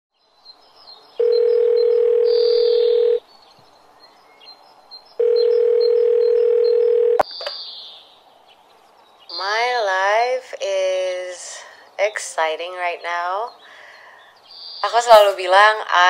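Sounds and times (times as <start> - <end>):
telephone ringing tone: 1.2 - 3.2, 5.2 - 7.2
sharp click: 7.2 - 7.6.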